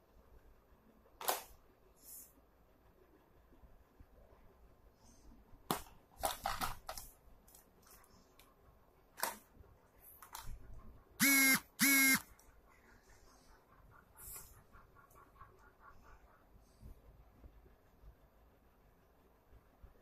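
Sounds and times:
honks of steady pitch: 11.2s - 12.3s.

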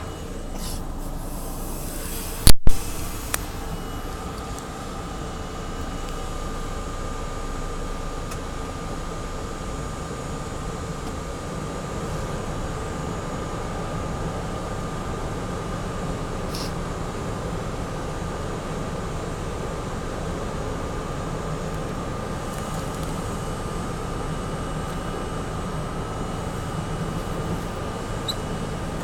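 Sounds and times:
subway car rumbling with whine: 0.0s - 29.0s.

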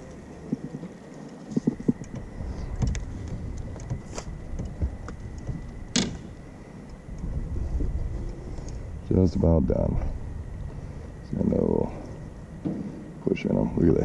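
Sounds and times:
low rumble of wind and water: 0.0s - 14.0s
gear knocking on boat deck: 1.6s - 6.4s.

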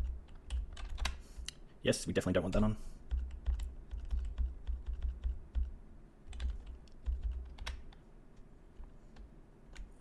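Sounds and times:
keyboard keys clicking: 0.2s - 1.2s, 3.1s - 5.7s, 6.3s - 8.0s.

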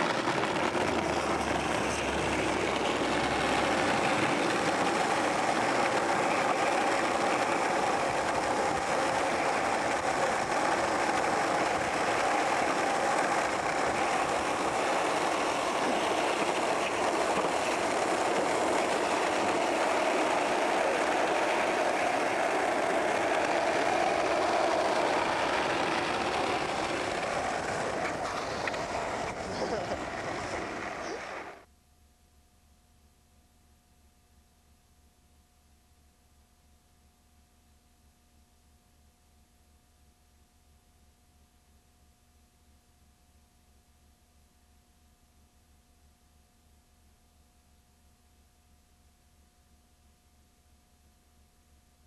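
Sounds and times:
skateboard wheels rolling on asphalt: 0.0s - 31.7s.

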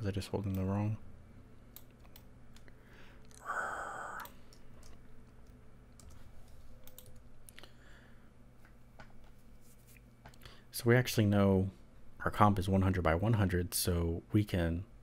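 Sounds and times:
steady low hum: 0.0s - 15.0s
breathy sound: 2.8s - 4.6s.

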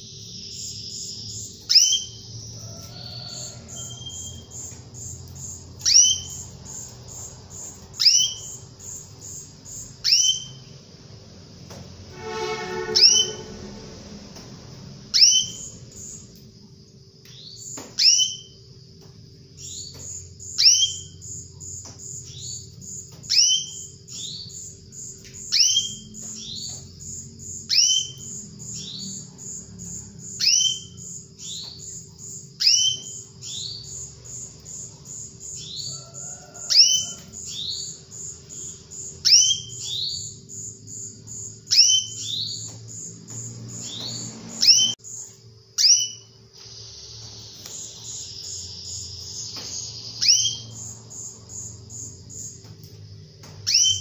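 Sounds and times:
canary call notes: 0.5s - 7.2s, 12.1s - 14.4s, 32.6s - 43.1s.

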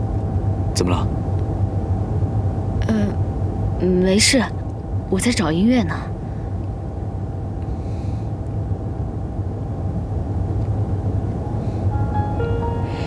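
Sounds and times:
held musical notes: 11.4s - 13.0s.

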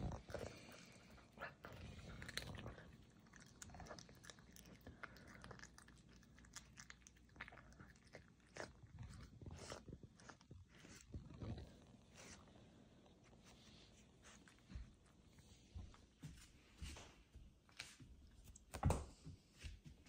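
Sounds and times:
animal chewing with wet crunches: 0.0s - 12.3s.

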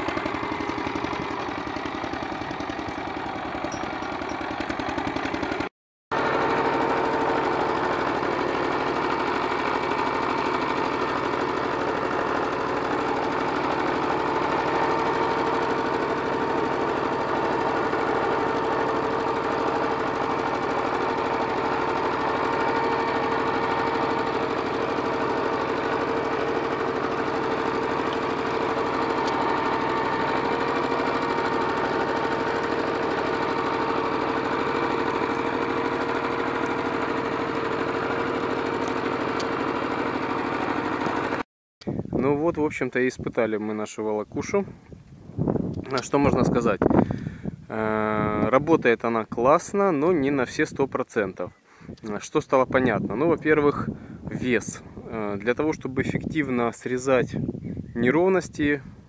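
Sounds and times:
tractor engine running under load: 0.0s - 41.4s.

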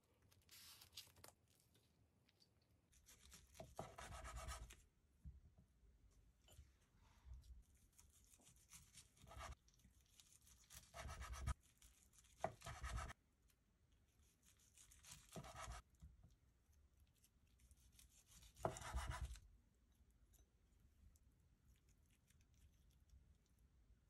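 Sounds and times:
knife sawing through food: 10.6s - 11.6s.

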